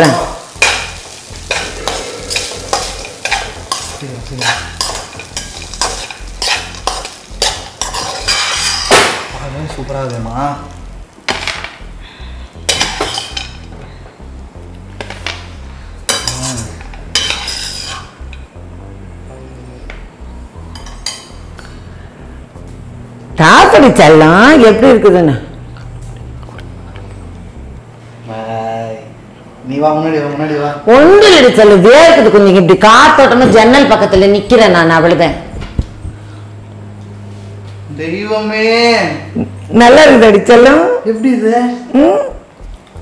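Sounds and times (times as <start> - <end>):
light sizzling: 0.0 - 32.4
spatula scraping a wok: 0.6 - 9.0, 12.6 - 13.7, 16.0 - 18.2.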